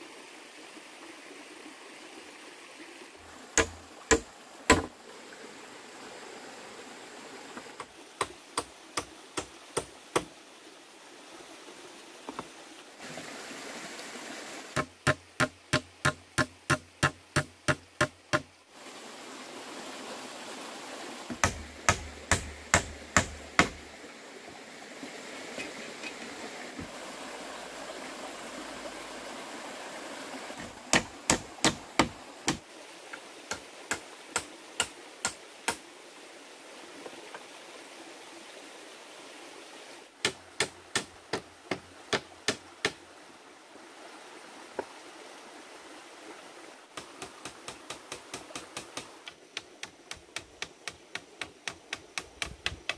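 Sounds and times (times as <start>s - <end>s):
sharp rhythmic knocks: 3.6s - 4.9s, 14.8s - 18.5s, 21.3s - 23.8s.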